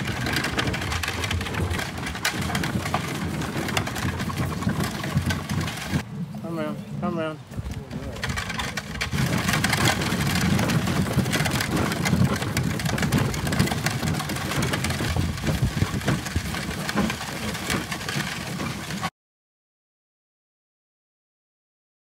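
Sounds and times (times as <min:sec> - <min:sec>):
rapid clatter and clicks: 0:00.0 - 0:06.1, 0:07.7 - 0:19.1
carriage wheels rumbling: 0:00.0 - 0:19.1.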